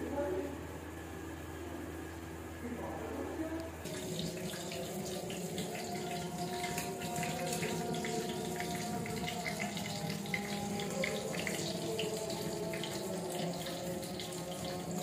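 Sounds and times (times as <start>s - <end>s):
low steady hum: 0.0s - 15.0s
running water splashing: 3.8s - 15.0s.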